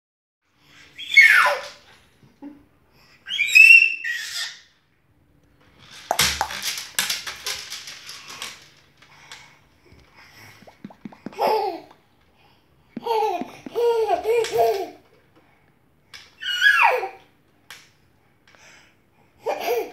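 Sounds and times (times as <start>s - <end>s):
baby squealing: 1.0s - 1.6s, 3.3s - 4.7s, 16.4s - 17.2s
knocks and taps: 10.6s - 11.6s, 13.0s - 14.0s.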